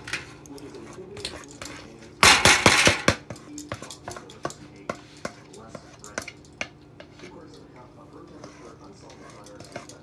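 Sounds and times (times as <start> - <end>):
utensil scraping a dish: 3.3 - 10.0.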